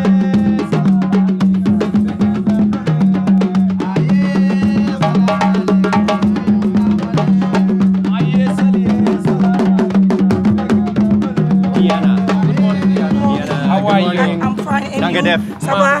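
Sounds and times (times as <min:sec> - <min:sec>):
upbeat background music: 0:11.7 - 0:16.0.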